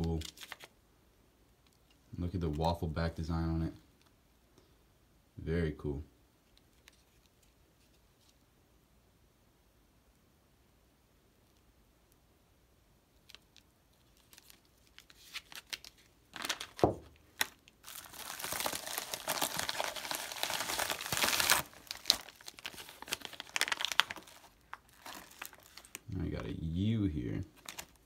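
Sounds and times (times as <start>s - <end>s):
plastic bag crinkling: 13.2s - 26.7s, 27.5s - 28.0s.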